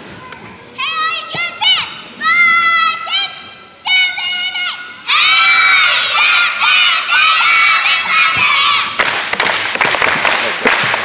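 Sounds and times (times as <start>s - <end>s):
children shouting and cheering: 0.0s - 9.1s
people clapping: 8.0s - 11.0s.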